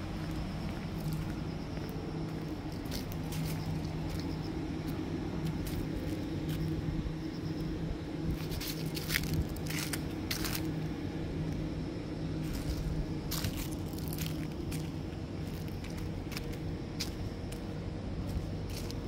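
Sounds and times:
dry leaves crackling underfoot: 0.0s - 7.1s, 8.2s - 11.7s, 12.3s - 19.0s
steady low hum: 0.0s - 19.0s
footsteps on paving: 0.1s - 6.8s, 12.5s - 19.0s.

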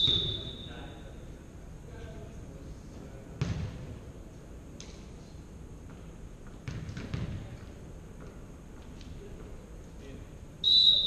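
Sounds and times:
ball bouncing on wooden gym floor: 0.0s - 0.4s, 3.4s - 4.0s, 5.8s - 9.6s.

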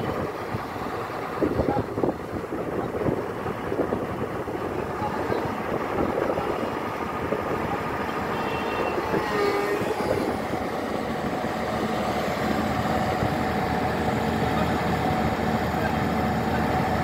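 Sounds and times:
excavator diesel engine running: 0.0s - 17.0s
brief squealing tone: 8.3s - 9.9s.

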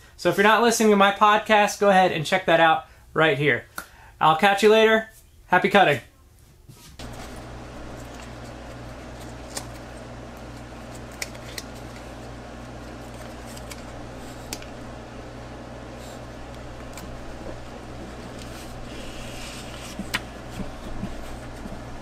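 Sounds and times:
steady low hum: 6.9s - 22.0s
sticker peeling and crinkling: 7.0s - 14.9s, 15.8s - 22.0s.

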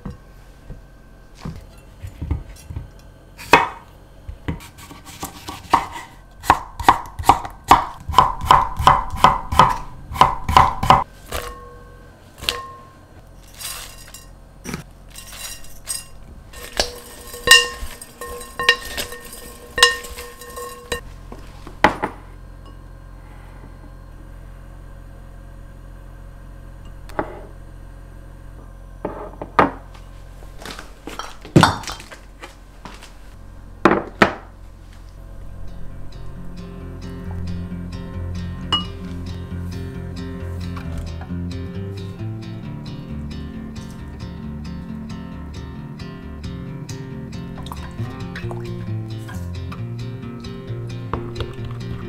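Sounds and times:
knife chopping on wooden board: 3.4s - 3.8s, 4.5s - 11.6s
clinks against glass bowl: 15.1s - 21.0s.

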